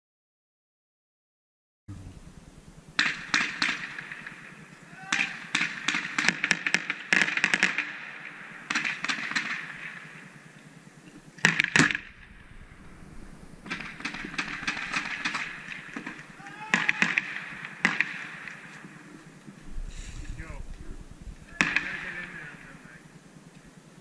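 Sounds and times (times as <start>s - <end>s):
airsoft gunfire bursts: 3.0s - 10.3s, 13.6s - 18.7s, 21.4s - 22.8s.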